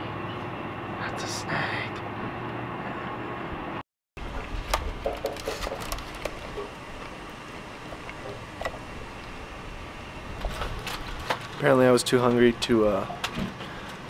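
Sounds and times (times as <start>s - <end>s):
paper wrappers rustling: 5.1s - 6.6s, 10.4s - 11.8s.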